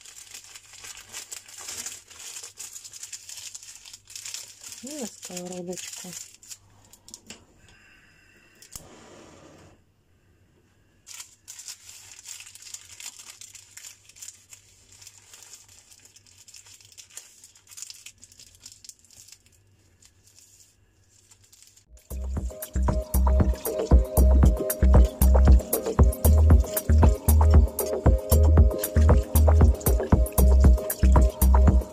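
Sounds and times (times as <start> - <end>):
baking paper crinkling: 0.0 - 7.3, 11.0 - 22.8, 25.6 - 31.9
loud music: 22.0 - 31.9.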